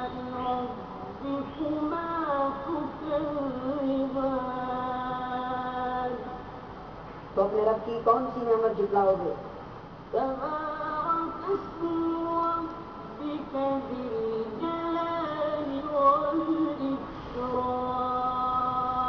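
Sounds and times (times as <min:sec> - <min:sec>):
person chanting melodic recitation: 0:00.0 - 0:06.4, 0:10.1 - 0:19.0.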